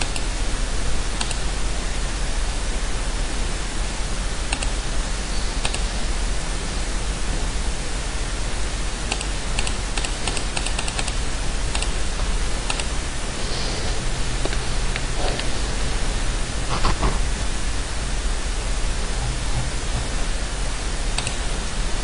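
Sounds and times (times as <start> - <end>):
low hum: 0.0 - 22.0
recording hiss: 0.0 - 22.0
mouse and keyboard clicks: 4.5 - 4.7, 9.1 - 11.9, 12.7 - 12.9, 21.2 - 21.4.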